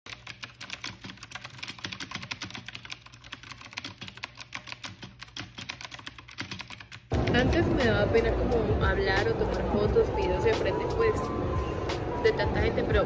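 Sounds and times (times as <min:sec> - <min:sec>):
keyboard key clicks: 0:00.1 - 0:07.3.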